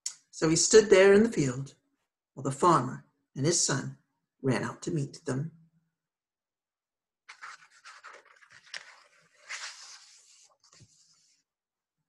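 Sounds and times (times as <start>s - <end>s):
paper crackles: 7.3s - 11.4s
paper page turning: 7.3s - 11.4s.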